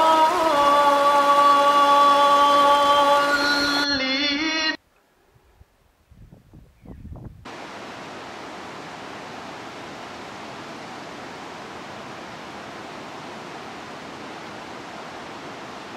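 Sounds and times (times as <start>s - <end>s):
steady rushing noise: 7.4s - 15.9s.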